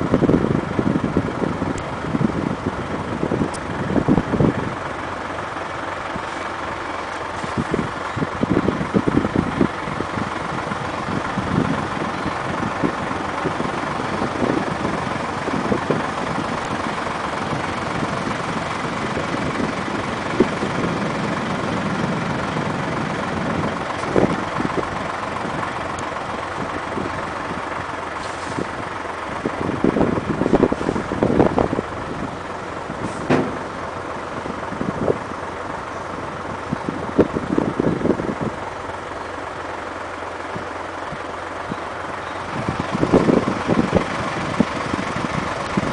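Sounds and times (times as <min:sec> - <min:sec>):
diesel engine running: 0:00.0 - 0:45.9
low thumps: 0:33.2 - 0:33.8
sharp knocks: 0:33.3 - 0:33.6.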